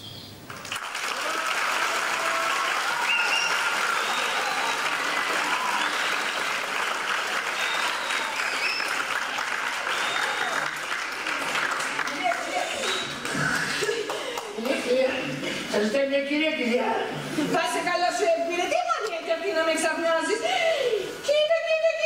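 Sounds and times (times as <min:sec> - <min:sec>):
audience applauding: 0:00.5 - 0:14.8.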